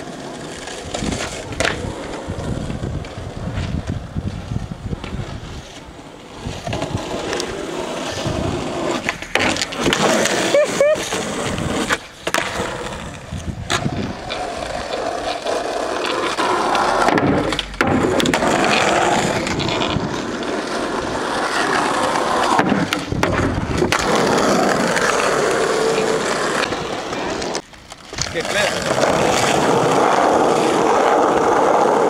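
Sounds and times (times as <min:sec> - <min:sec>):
skateboard wheels rolling on asphalt: 0:00.0 - 0:32.0
skateboard knocks: 0:16.0 - 0:20.0, 0:22.5 - 0:24.5.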